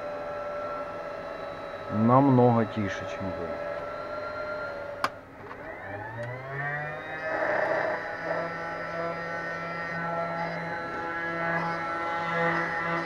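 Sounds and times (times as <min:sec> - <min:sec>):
cooling fans whining and humming: 0:00.0 - 0:13.0.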